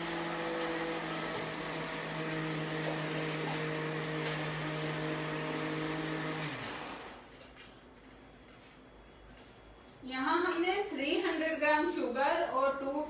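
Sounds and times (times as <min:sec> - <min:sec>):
mixer grinder motor running: 0:00.0 - 0:07.3.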